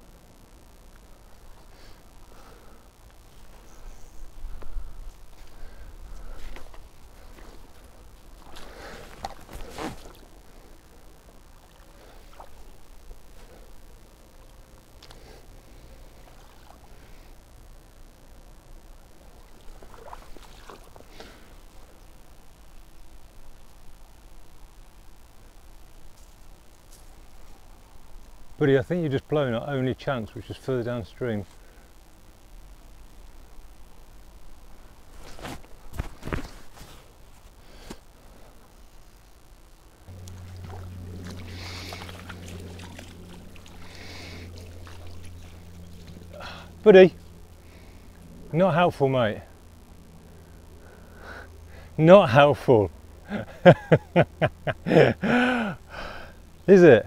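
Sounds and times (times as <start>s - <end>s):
steady low hum: 0.0s - 57.0s
river water splashing: 19.5s - 21.1s, 40.1s - 46.4s
low rumble: 40.0s - 48.6s.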